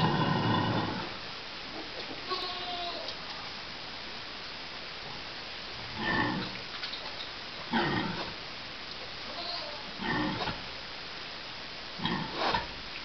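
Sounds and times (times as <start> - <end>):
pig grunting: 0.0 - 1.2, 5.9 - 6.6, 7.7 - 8.4, 10.0 - 10.6, 12.0 - 12.7
background hiss: 0.0 - 13.0.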